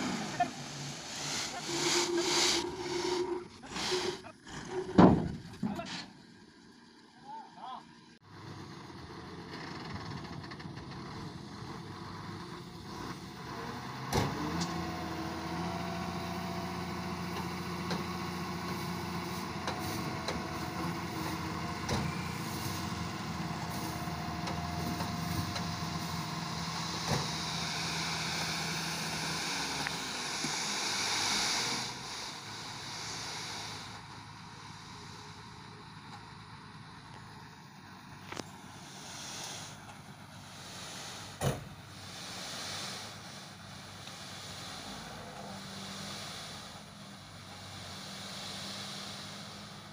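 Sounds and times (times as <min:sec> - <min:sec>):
loud hiss: 0:00.0 - 0:04.2, 0:15.5 - 0:35.9, 0:37.8 - 0:49.9
dust sliding off: 0:00.0 - 0:04.3, 0:14.8 - 0:35.5, 0:38.2 - 0:49.9
diesel truck engine under load: 0:00.0 - 0:49.9.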